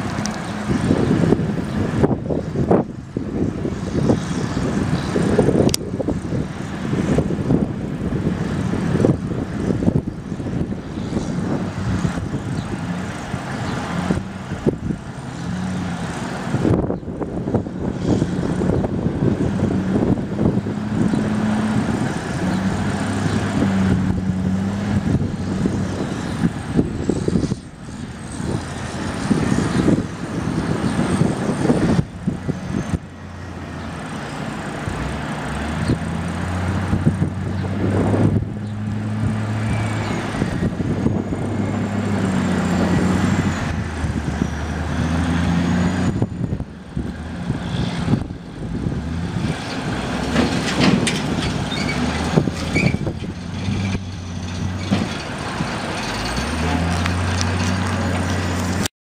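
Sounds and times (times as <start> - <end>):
diesel truck engine drone: 0.0 - 58.9
knocks and rattles: 49.6 - 58.8.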